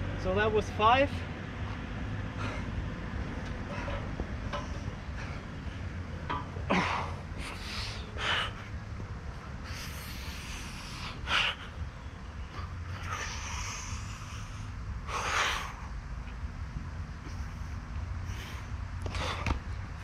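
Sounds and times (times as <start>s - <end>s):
man breathing hard: 1.6s - 6.0s, 6.6s - 8.9s, 9.6s - 16.0s, 17.2s - 19.6s.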